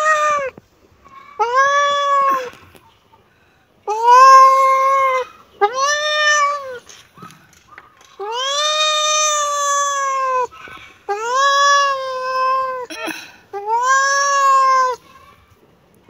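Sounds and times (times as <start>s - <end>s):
kitten meowing: 1.4s - 2.6s, 3.9s - 6.9s, 8.2s - 10.5s, 11.1s - 12.9s, 13.6s - 15.0s.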